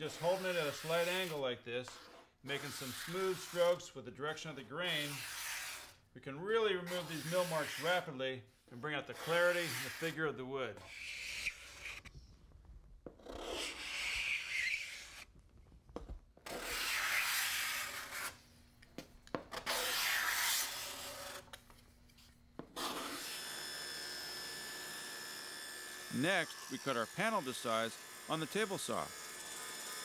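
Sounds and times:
card scraper rasping on wood: 0.1 - 3.8, 5.0 - 6.0, 6.9 - 8.0, 9.2 - 10.2, 10.8 - 12.1, 13.4 - 15.3, 19.6 - 21.4, 22.6 - 23.6.

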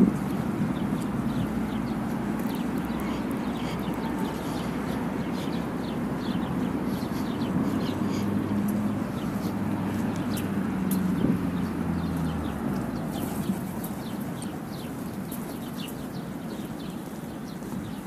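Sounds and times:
low engine hum: 0.0 - 18.0
small birds chirping: 0.0 - 18.0.

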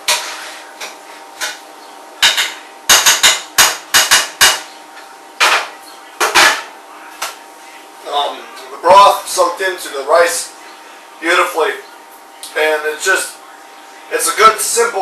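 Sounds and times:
utensils clattering against cookware: 0.0 - 1.6, 5.4 - 6.7.

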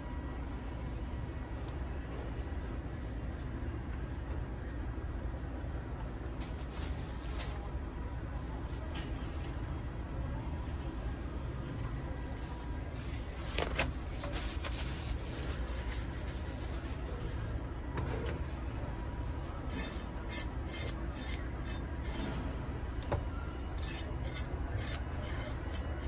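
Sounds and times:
knife scraping on wooden board: 19.7 - 22.3, 23.8 - 25.8.

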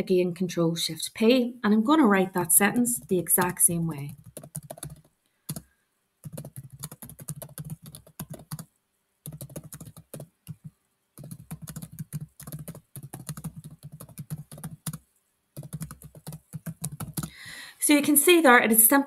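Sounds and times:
keyboard typing: 3.0 - 15.0, 15.6 - 17.3.

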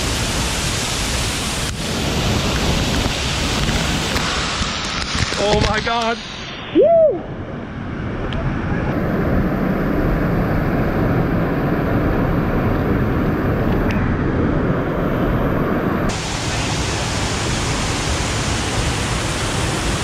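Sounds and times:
waterfall roaring: 0.0 - 7.4, 14.6 - 20.0.

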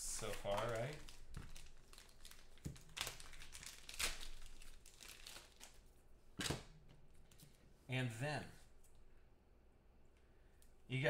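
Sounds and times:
foil wrapper crinkling: 0.0 - 5.9.

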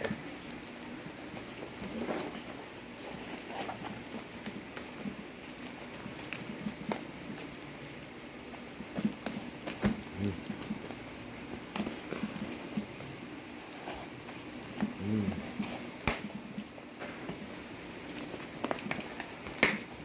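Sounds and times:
scissors snipping through parcel: 0.0 - 11.0, 13.8 - 17.4, 18.1 - 20.0
tape and paper crinkling: 0.0 - 20.0.

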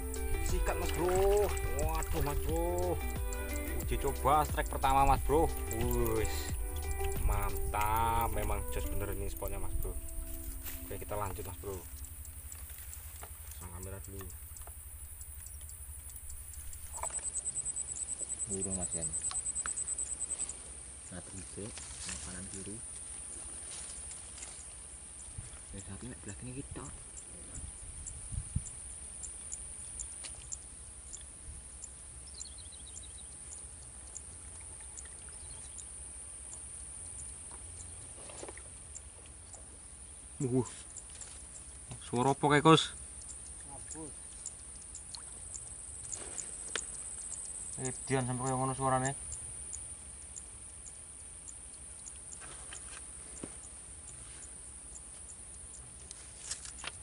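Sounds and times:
bird call falling notes: 0.0 - 19.8
short high chirps: 0.0 - 20.6
high-pitched insect buzz: 0.0 - 21.2
insect ticking chirps: 0.0 - 57.0
insects buzzing: 0.0 - 57.0.

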